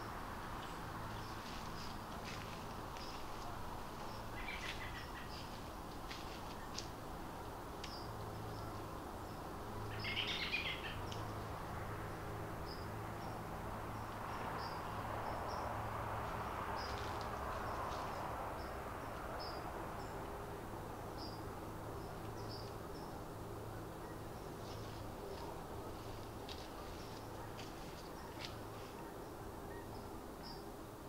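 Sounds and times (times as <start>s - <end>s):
chittering bird call: 9.9s - 11.2s.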